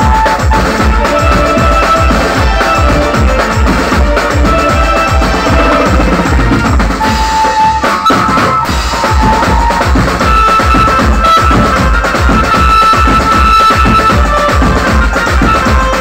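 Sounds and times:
electronic keyboard notes: 0.0 - 8.2
drum kit steady beat: 0.0 - 16.0.

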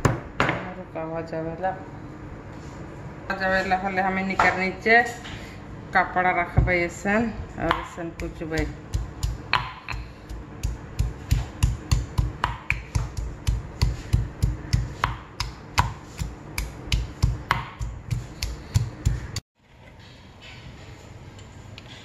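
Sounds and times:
stone pestle pounding in mortar: 7.6 - 19.4.

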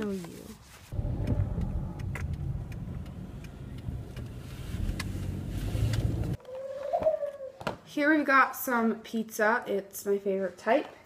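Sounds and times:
car rumble inside cabin: 0.9 - 6.4.

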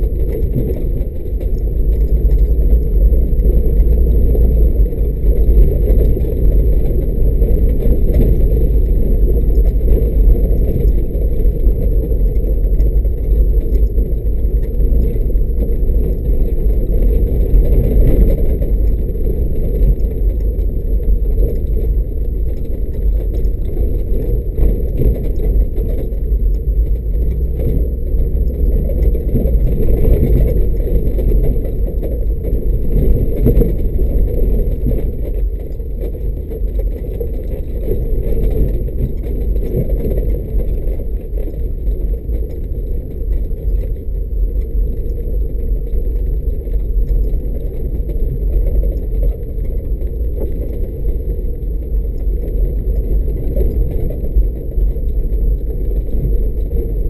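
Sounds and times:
car engine rumbling: 0.0 - 57.0
tyres and body over rough ground: 0.0 - 57.0.

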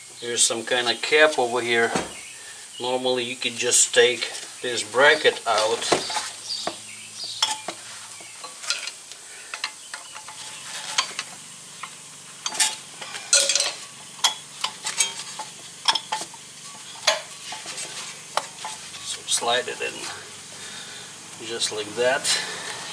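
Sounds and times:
metal clicks and scrapes: 8.4 - 16.4.

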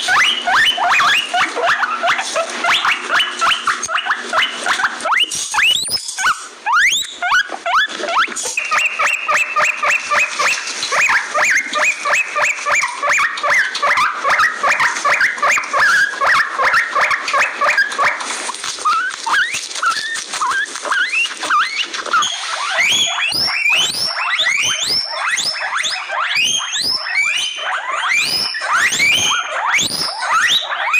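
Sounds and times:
guinea pig squeaking: 0.0 - 30.9
whistle-like squeals: 5.1 - 9.2, 18.9 - 30.9.

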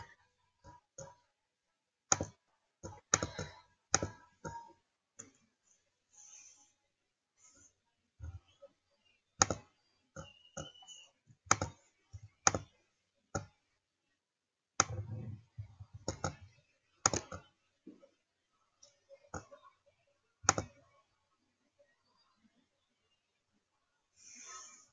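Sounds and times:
computer mouse clicking: 2.1 - 5.4, 9.4 - 12.7, 14.8 - 17.5, 20.5 - 20.8.

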